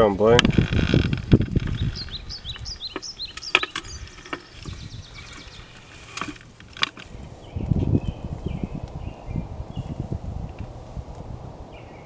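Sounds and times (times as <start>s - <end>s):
small birds chirping: 0.0s - 12.0s
low rumble: 7.1s - 12.0s.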